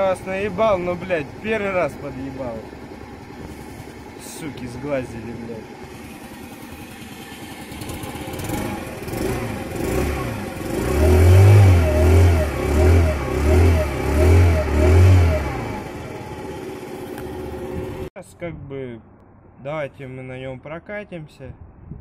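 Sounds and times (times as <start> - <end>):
moped engine revving: 0.0 - 18.1.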